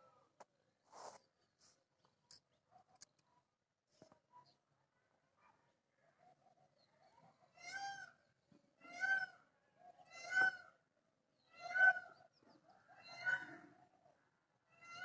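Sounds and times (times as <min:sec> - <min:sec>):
peafowl calling: 0:08.8 - 0:09.4, 0:10.1 - 0:10.7, 0:11.5 - 0:12.2, 0:13.0 - 0:13.6.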